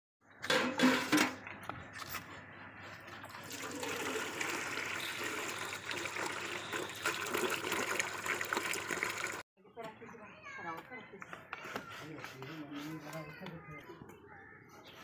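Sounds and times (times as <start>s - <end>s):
water splashing into metal bucket: 3.4s - 9.4s.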